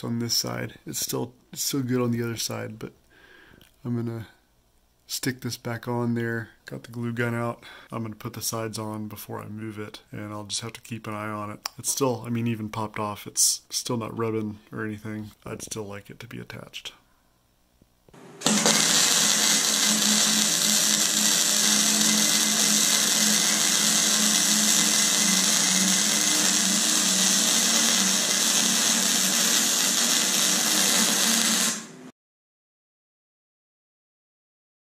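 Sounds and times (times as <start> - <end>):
low hum: 18.2 - 32.1
welding arc sizzling: 18.2 - 32.1.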